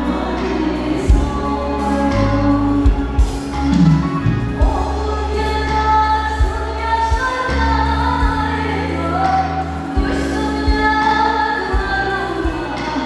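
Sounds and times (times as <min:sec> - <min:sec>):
bass and drums: 0:00.0 - 0:13.0
woman singing lead: 0:00.0 - 0:13.0.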